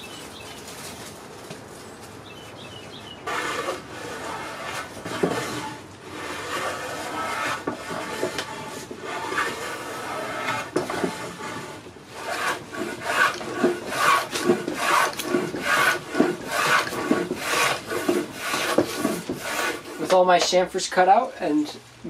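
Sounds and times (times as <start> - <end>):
hand plane shaving wood: 3.2 - 20.6.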